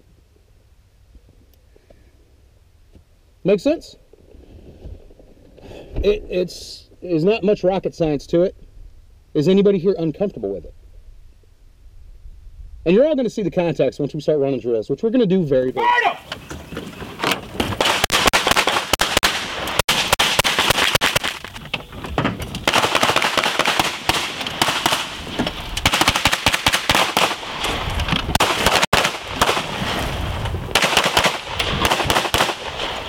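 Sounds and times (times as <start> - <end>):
rapid handgun fire: 17.8 - 21.4, 22.6 - 30.0, 30.7 - 33.0.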